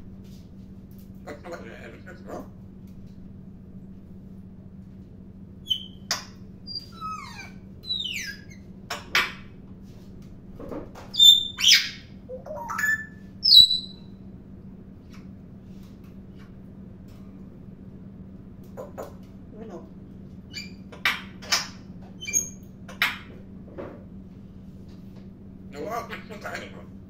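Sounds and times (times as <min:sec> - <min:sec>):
parrot whistling and chirping: 0:05.6 - 0:08.6, 0:11.1 - 0:14.1, 0:20.5 - 0:20.8, 0:22.2 - 0:23.2.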